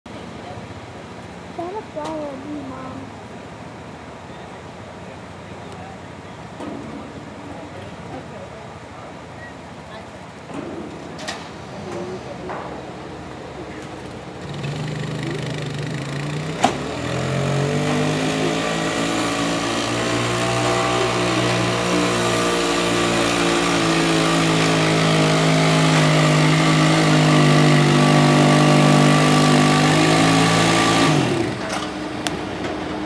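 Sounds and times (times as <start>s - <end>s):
atv engine running hard: 13.5s - 33.0s.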